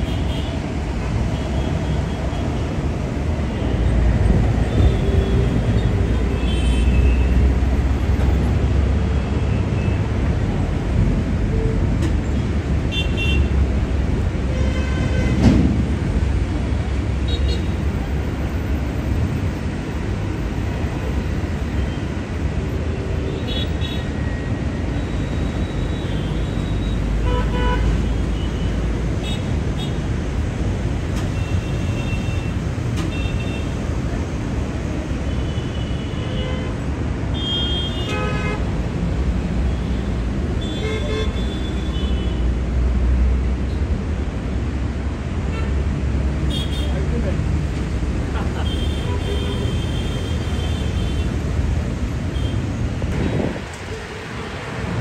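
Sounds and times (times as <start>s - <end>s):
road traffic rumble: 0.0s - 55.0s
vehicle horns tooting: 35.4s - 38.6s.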